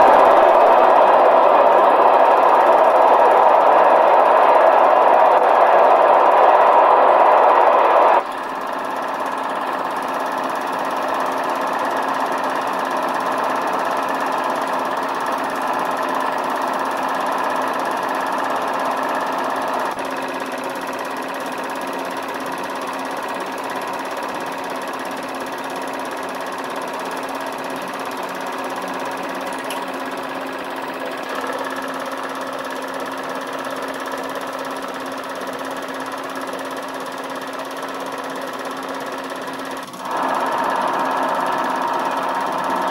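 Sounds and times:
machine rattling and humming: 0:00.0 - 0:42.9.

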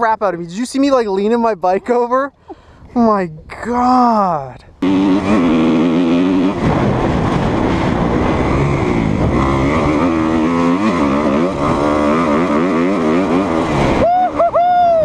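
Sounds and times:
dirt bike engine revving: 0:04.8 - 0:14.6.

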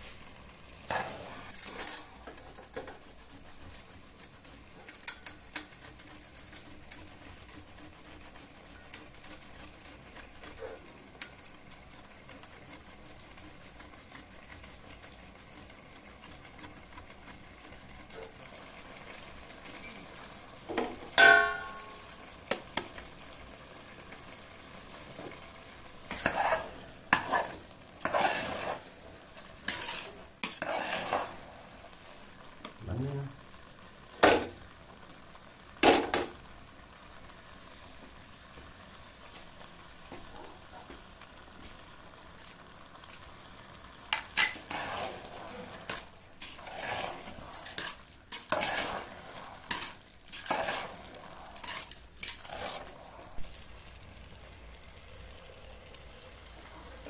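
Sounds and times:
faint sizzling hiss: 0:00.0 - 0:57.0
spoon stirring in a steel pot: 0:00.8 - 0:19.9, 0:20.7 - 0:23.1, 0:24.9 - 0:31.4, 0:41.6 - 0:53.5
metallic clang: 0:21.2 - 0:22.1.

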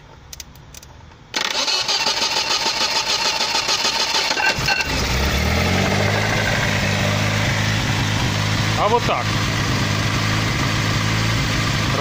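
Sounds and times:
engine starter cranking: 0:01.3 - 0:05.2
car engine running: 0:04.5 - 0:12.0.

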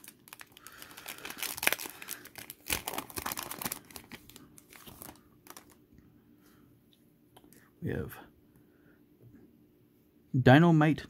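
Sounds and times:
foil wrapper crinkling: 0:00.0 - 0:05.8.

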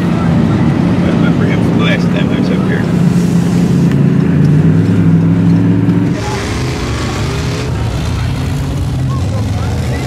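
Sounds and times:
engine drone inside cab: 0:00.1 - 0:10.0
truck engine running with hiss: 0:02.6 - 0:04.4, 0:06.0 - 0:10.0.

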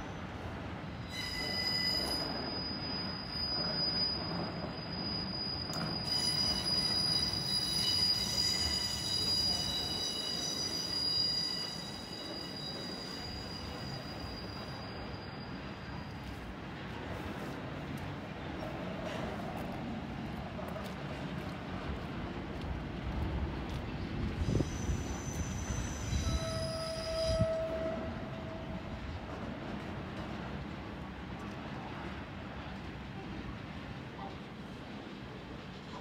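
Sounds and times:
train wheels squealing on rails: 0:00.0 - 0:22.2, 0:23.2 - 0:36.0
train rumble: 0:00.0 - 0:36.0.

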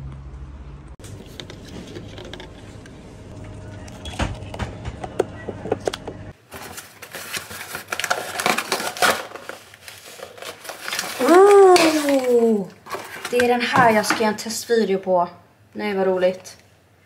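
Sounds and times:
low hum: 0:00.0 - 0:06.4
cardboard parcel tearing: 0:06.4 - 0:13.3.

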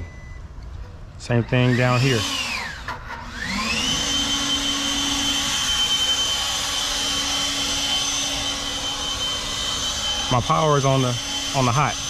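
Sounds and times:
machine motor whining: 0:01.3 - 0:12.0
noisy rush: 0:03.4 - 0:12.0.

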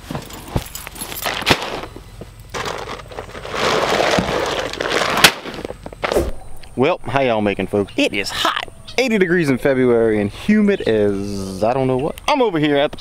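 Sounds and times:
rubber boots being pulled on: 0:00.0 - 0:06.2
sack crinkling on grass: 0:00.0 - 0:06.3.

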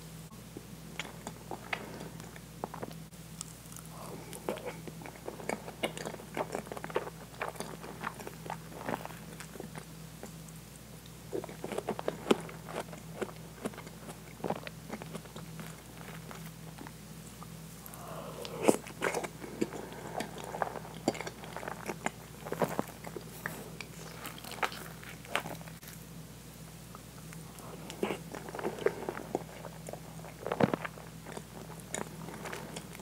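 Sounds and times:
faint steady hum: 0:00.0 - 0:33.0
wet chewing and mouth smacks: 0:01.0 - 0:25.9.

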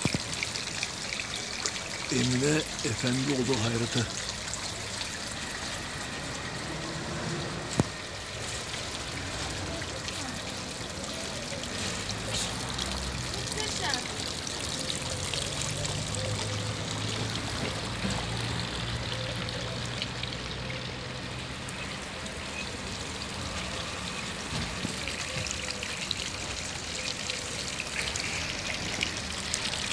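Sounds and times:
fountain water splashing: 0:00.0 - 0:29.9
low hum: 0:04.1 - 0:12.7.

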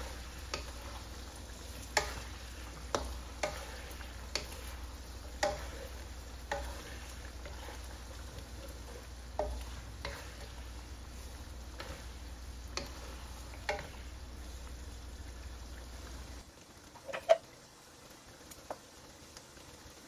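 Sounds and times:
sauce sizzling: 0:00.0 - 0:20.0
wooden spatula knocking pan: 0:01.8 - 0:03.7, 0:05.3 - 0:07.7, 0:09.4 - 0:10.5.

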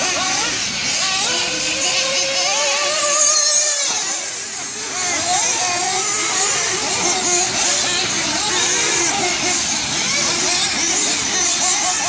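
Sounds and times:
rc car engine revving: 0:00.0 - 0:12.0.

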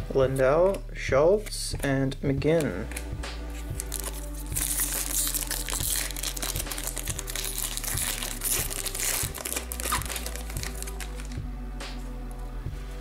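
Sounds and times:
foil wrapper crinkling: 0:03.6 - 0:11.4.

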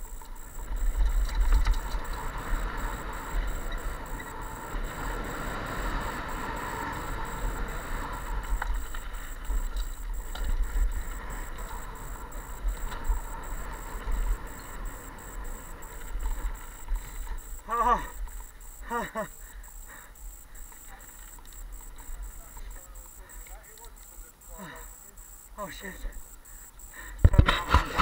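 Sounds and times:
small clicks and rattles: 0:00.0 - 0:04.9, 0:08.4 - 0:18.8
bike tyres on gravel: 0:00.0 - 0:25.0.

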